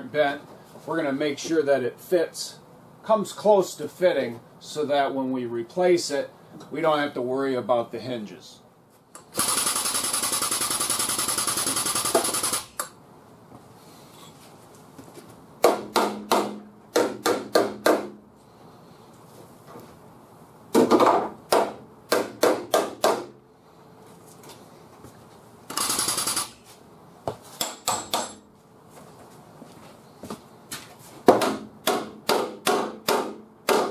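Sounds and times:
pulsing pneumatic tool: 9.2 - 12.9, 25.7 - 26.7.

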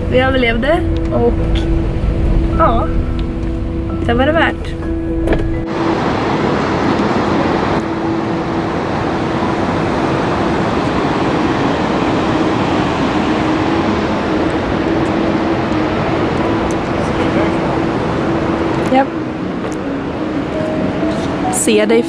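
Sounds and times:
loud rushing noise: 4.9 - 22.0.

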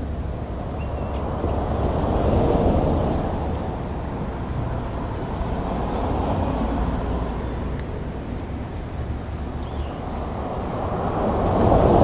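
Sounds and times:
wind buffeting microphone: 0.0 - 12.0
faint bird chirps: 0.8 - 1.2.

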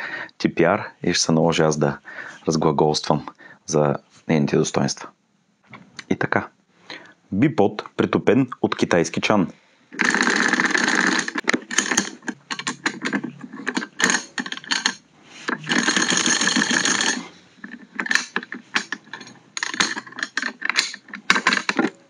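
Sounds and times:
bipod legs ratcheting: 9.9 - 22.0.

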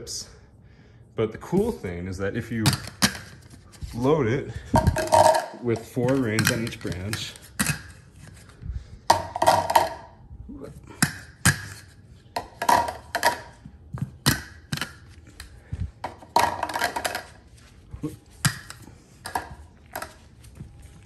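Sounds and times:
plastic rings knocking together: 4.7 - 8.0, 9.1 - 10.2, 11.0 - 17.4, 18.4 - 20.2.

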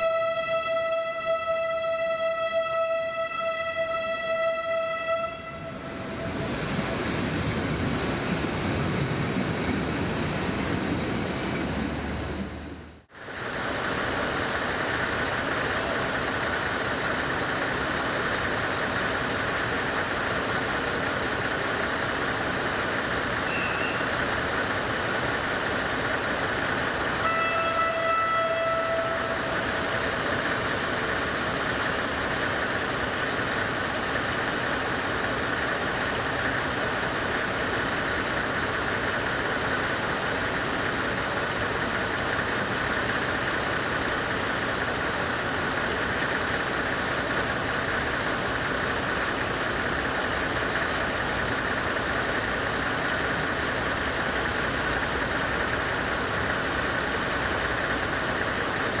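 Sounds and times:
diesel locomotive engine running: 0.0 - 59.0.

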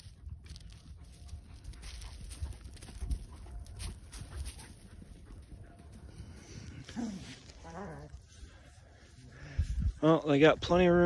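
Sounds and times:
puppies playing: 0.0 - 8.8.

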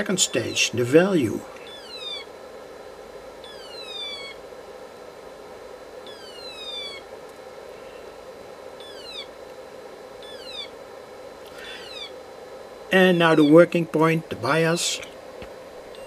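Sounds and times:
steady hum: 0.0 - 16.0
falling electronic siren wails: 1.6 - 2.3, 3.4 - 4.4, 6.0 - 7.1, 8.8 - 9.4, 10.2 - 10.8, 11.6 - 12.2.

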